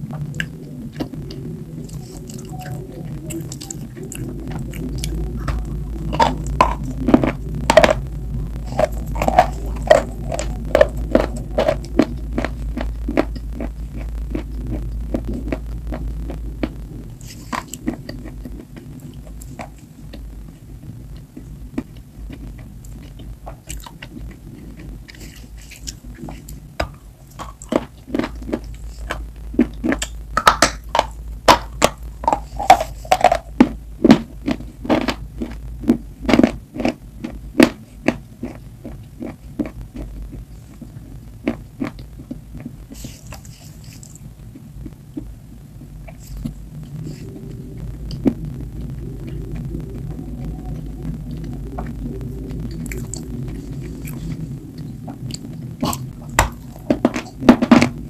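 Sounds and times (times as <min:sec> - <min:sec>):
crunching and chewing food: 0:00.0 - 0:58.0
steady low hum: 0:00.0 - 0:58.0.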